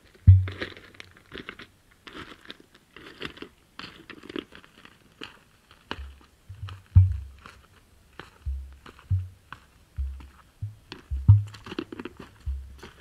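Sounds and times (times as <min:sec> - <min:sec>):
emu deep booming thump: 0:00.3 - 0:00.6, 0:06.5 - 0:07.4, 0:08.5 - 0:09.4, 0:10.0 - 0:11.7, 0:12.4 - 0:12.8
footsteps crunching on stony ground: 0:05.2 - 0:13.0.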